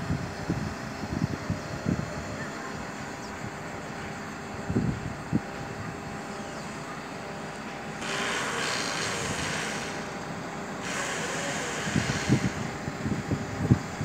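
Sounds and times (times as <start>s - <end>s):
crane truck running: 0.0s - 14.0s
loud hissing: 8.0s - 10.2s, 10.8s - 12.8s.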